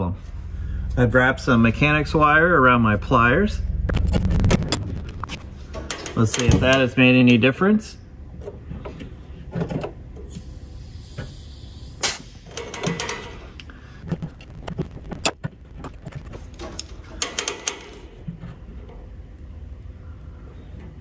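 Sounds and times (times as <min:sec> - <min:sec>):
hand tools clicking and scraping: 0:05.7 - 0:06.9.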